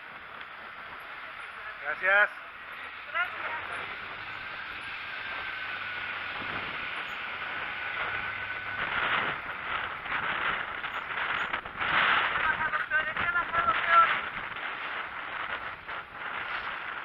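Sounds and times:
bicycle rattling over pavement: 0.0s - 17.0s
wind and tyre hiss: 0.0s - 17.0s
bicycle brake squeal: 6.9s - 7.4s, 10.9s - 11.5s.

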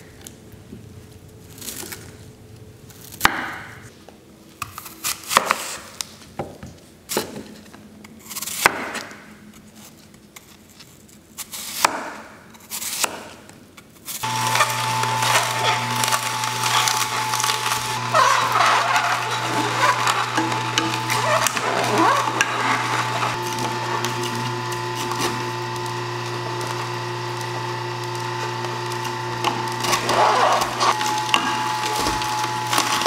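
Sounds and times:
juicer motor humming: 14.2s - 33.0s.

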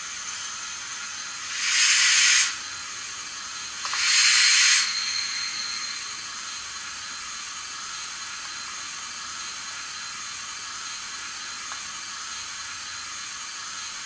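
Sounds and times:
steam hiss bursts: 1.3s - 7.7s.

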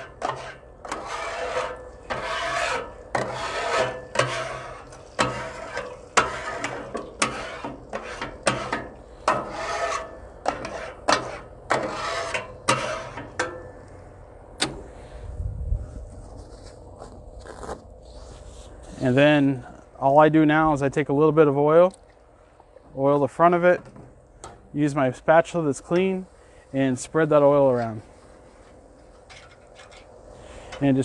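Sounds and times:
metal scraper rasping on griddle: 0.0s - 13.6s.

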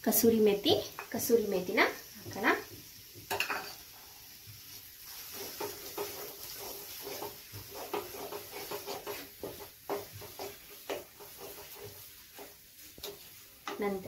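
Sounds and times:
paste sizzling in oil: 0.0s - 14.0s
wooden spatula scraping metal pan: 2.2s - 3.9s, 4.6s - 14.0s.

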